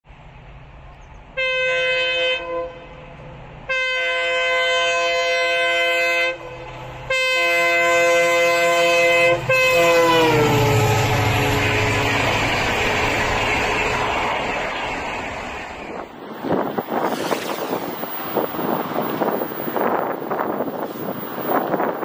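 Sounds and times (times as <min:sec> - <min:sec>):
train coaches rumbling by: 0:00.1 - 0:22.0
locomotive air horn blasts: 0:01.4 - 0:14.2.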